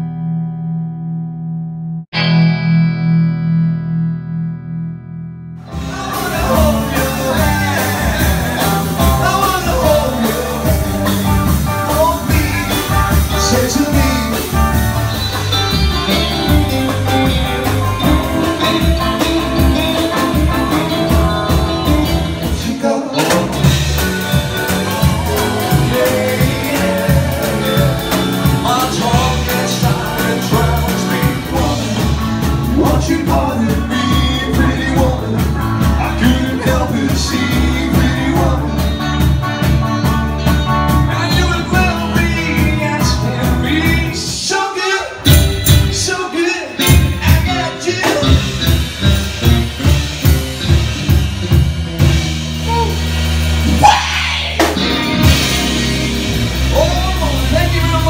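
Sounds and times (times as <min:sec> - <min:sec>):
rock and roll band playing: 0:02.1 - 0:58.0
man singing: 0:05.7 - 0:39.6, 0:40.8 - 0:48.8, 0:53.7 - 0:58.0.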